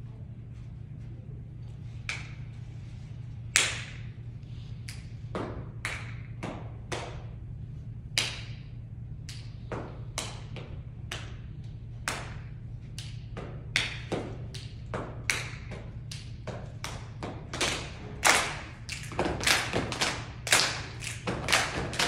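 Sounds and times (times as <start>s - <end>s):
steady low hum: 0.0s - 22.0s
stomping and clapping in unison: 9.3s - 22.0s.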